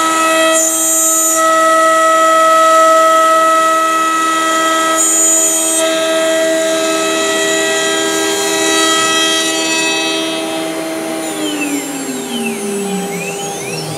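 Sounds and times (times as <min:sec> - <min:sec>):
router spindle high whine: 0:00.0 - 0:13.9.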